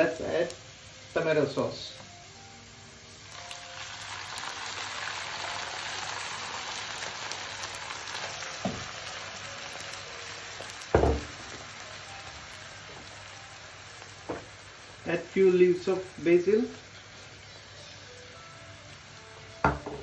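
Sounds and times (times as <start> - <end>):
onion and garlic sizzling in pan: 0.0 - 20.0.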